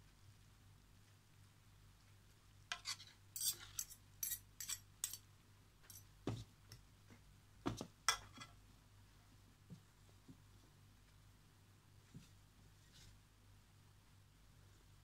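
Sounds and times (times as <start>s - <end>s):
utensils clinking against metal pot: 3.4s - 5.2s.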